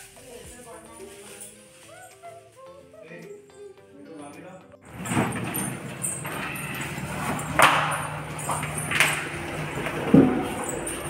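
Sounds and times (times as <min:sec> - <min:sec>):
metal lock clacks: 0:04.9 - 0:11.0.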